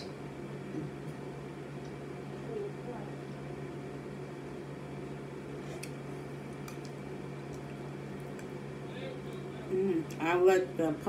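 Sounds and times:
low appliance hum: 0.0s - 11.0s
soft eating sounds: 5.4s - 10.2s.

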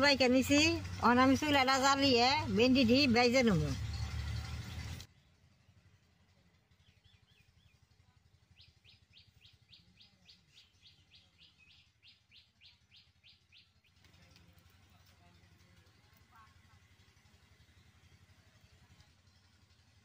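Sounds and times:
faint bird chirping: 6.6s - 14.4s.

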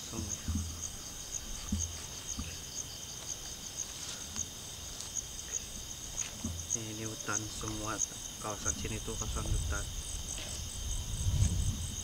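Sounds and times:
crickets chirping: 0.0s - 12.0s
insect hum: 0.0s - 12.0s
soft low thuds: 0.2s - 2.7s, 6.1s - 7.0s.

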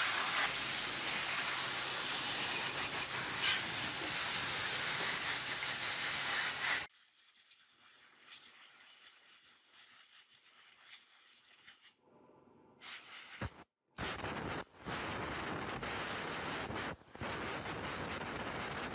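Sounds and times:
water jet hissing on plastic: 0.0s - 11.9s.

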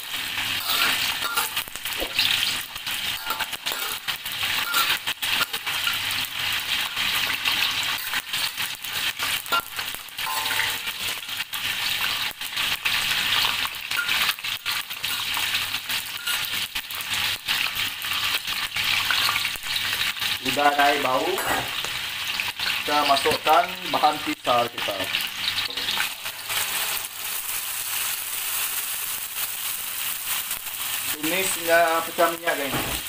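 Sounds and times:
spices sizzling in hot oil: 0.0s - 33.0s
metal spatula scraping wok: 0.1s - 6.1s, 9.0s - 11.3s, 16.1s - 16.6s.

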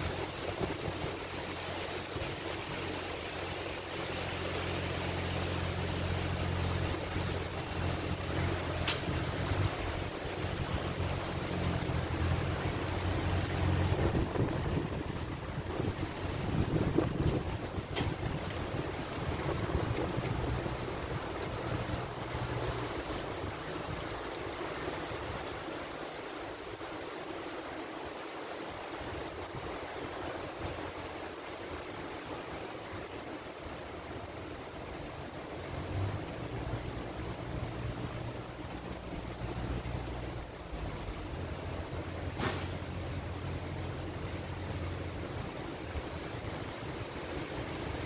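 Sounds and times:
wind gusts buffeting microphone: 0.0s - 3.4s, 5.3s - 27.0s
storm winds rushing through trees: 0.0s - 48.0s.

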